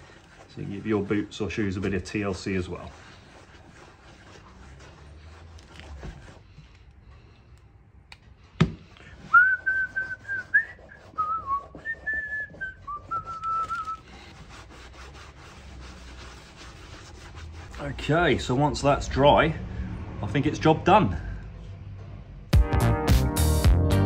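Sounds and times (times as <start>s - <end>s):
hands rubbing leather boot: 0.0s - 7.3s, 9.1s - 18.2s
person whistling a tune: 9.3s - 14.0s.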